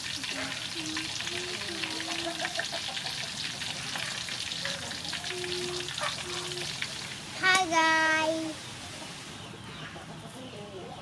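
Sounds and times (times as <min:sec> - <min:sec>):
food deep-frying in hot oil: 0:00.0 - 0:09.4.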